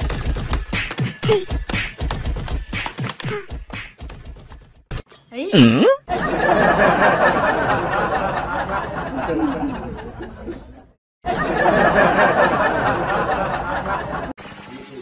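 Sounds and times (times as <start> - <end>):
crowd laughing and chattering: 6.1 - 15.0.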